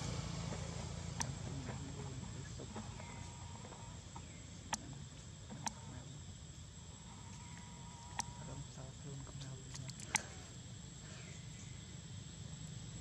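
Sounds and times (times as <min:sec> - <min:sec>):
high-pitched insect drone: 0:00.0 - 0:13.0
sharp clicks: 0:01.2 - 0:02.0, 0:02.6 - 0:06.1, 0:07.3 - 0:08.6, 0:09.4 - 0:10.4.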